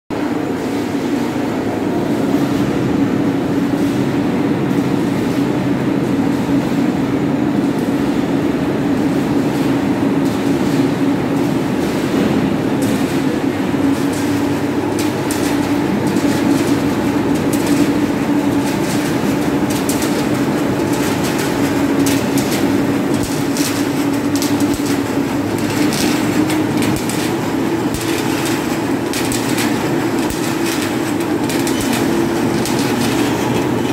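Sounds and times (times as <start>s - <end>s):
machine drone with low hum: 0.2s - 33.9s
metallic clicks and clatter: 9.6s - 33.9s.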